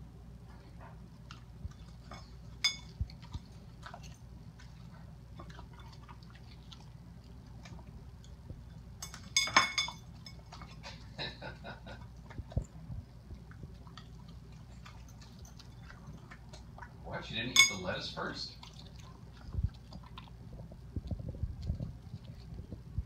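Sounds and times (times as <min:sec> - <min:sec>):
dog chewing and licking: 0:00.4 - 0:23.0
plate clinking on tile floor: 0:09.0 - 0:10.4, 0:17.5 - 0:17.9.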